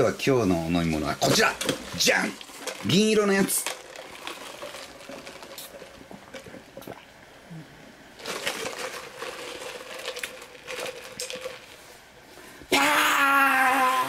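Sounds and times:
faint steady hum: 0.0s - 14.0s
plastic cup and straw clicking: 8.2s - 11.7s.

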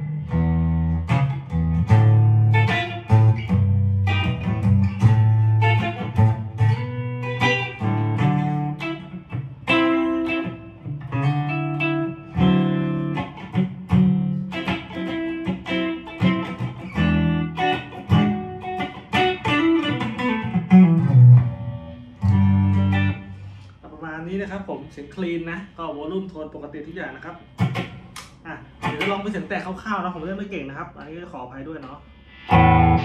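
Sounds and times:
electric guitar picking chords: 0.0s - 23.6s, 32.2s - 33.0s.

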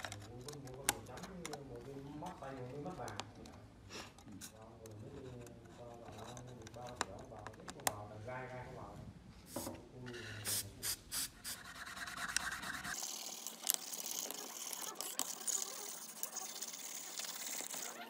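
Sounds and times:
light rubbing and clicks: 0.0s - 3.6s, 4.2s - 8.2s, 12.0s - 18.0s
brush scrubbing plastic: 11.4s - 18.0s.

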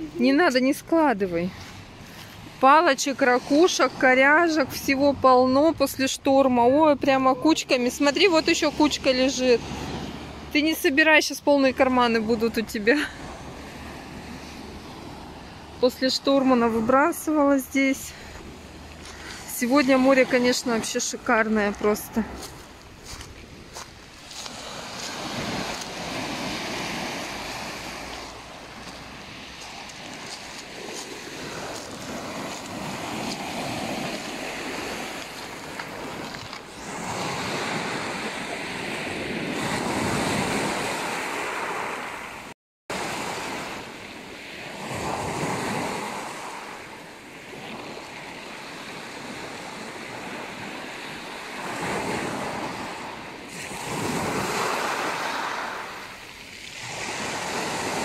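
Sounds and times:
waves breaking on pebble beach: 7.6s - 58.0s.

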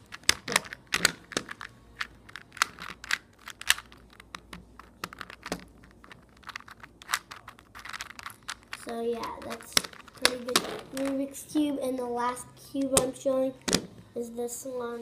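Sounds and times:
puzzle cube clicking as turned: 0.0s - 11.2s.

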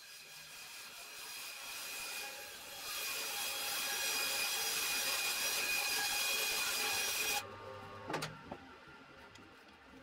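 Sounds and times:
bandsaw cutting wood: 0.0s - 7.4s.

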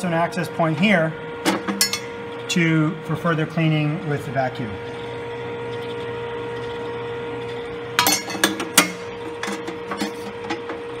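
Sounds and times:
coffee roaster humming: 0.0s - 11.0s.

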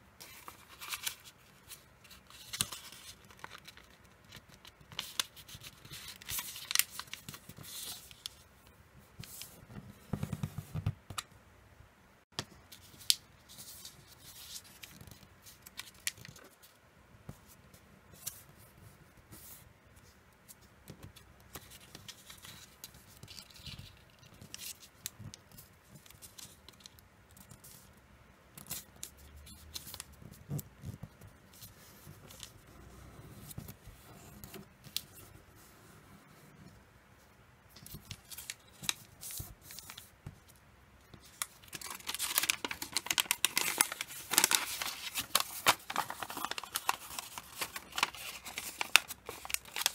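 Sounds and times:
paper rustling and crackling: 0.2s - 8.4s, 41.1s - 49.9s.

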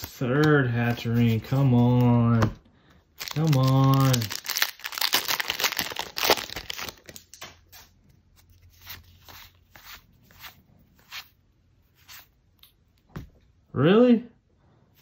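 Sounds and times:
foil wrapper crinkling and tearing: 3.2s - 7.4s.

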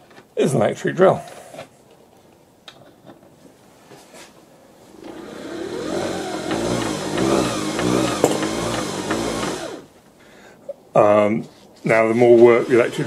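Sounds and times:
cordless drill motor whirring: 5.0s - 9.9s, 12.4s - 13.0s.

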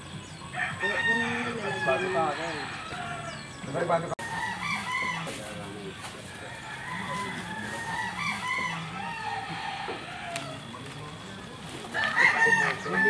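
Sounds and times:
chickens clucking: 0.0s - 13.0s
roosters crowing: 0.0s - 13.0s.

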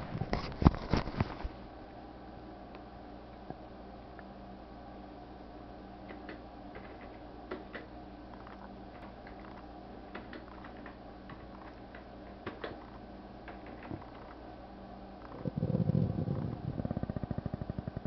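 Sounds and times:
low hum: 0.0s - 18.0s
stomach gurgling: 15.2s - 18.0s.

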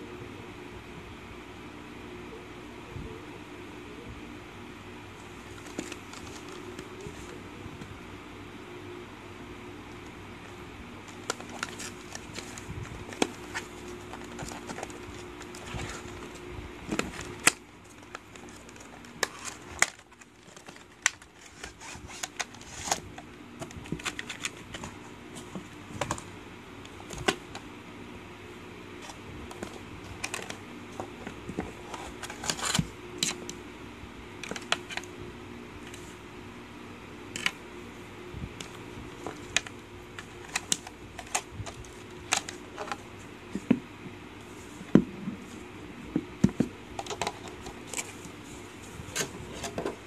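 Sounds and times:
low steady hum: 0.0s - 50.0s
cardboard and plastic packaging crinkling: 5.3s - 7.4s, 11.0s - 26.3s, 29.0s - 33.5s, 34.4s - 35.1s, 38.6s - 43.0s.

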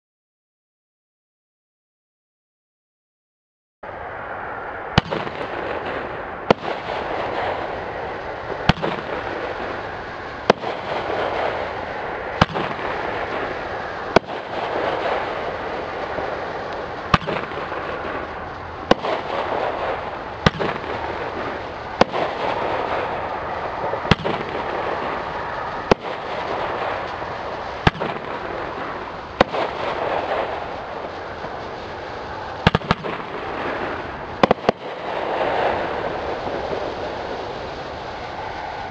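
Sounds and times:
firework bangs: 4.9s - 38.9s
firework strobe hiss: 5.0s - 38.9s.

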